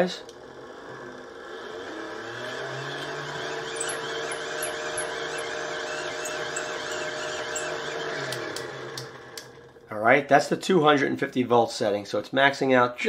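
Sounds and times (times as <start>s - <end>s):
hand-cranked generator whirring: 0.0s - 10.0s.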